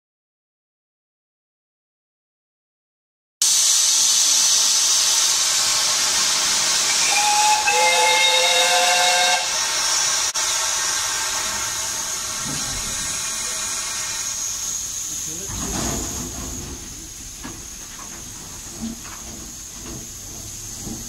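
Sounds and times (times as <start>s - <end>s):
steam hissing: 3.4s - 21.0s
steam whistle chord: 6.8s - 9.7s.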